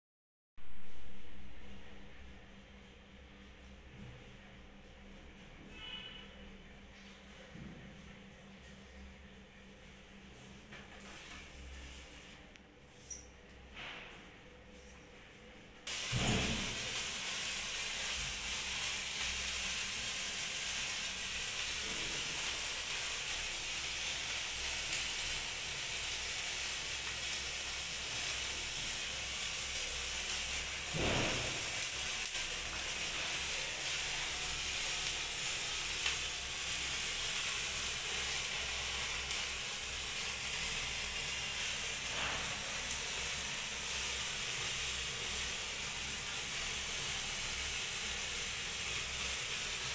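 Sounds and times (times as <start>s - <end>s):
sparkler fizzing hiss: 15.9s - 49.9s
sparkler pops: 15.9s - 49.9s.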